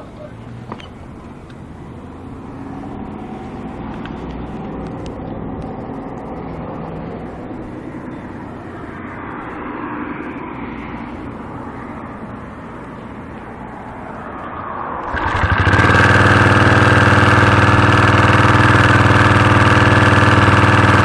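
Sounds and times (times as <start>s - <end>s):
small engine idling: 15.1s - 21.0s.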